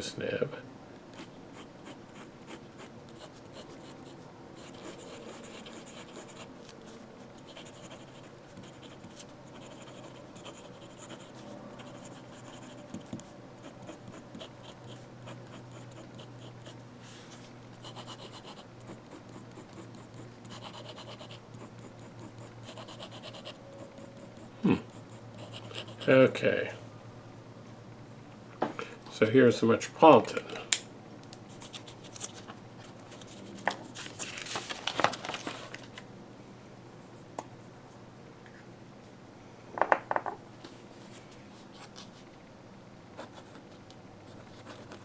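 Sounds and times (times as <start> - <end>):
fountain pen scratching paper: 1.2 - 6.5, 7.4 - 16.8, 17.8 - 26.1, 44.3 - 45.0.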